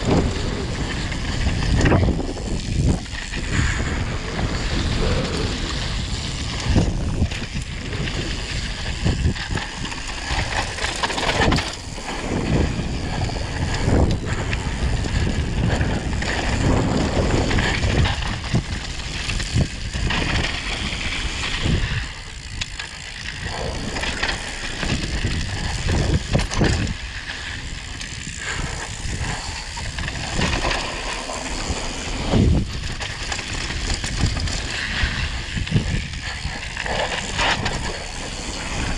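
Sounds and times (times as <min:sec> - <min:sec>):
tyre and wind noise: 0:00.0 - 0:38.9.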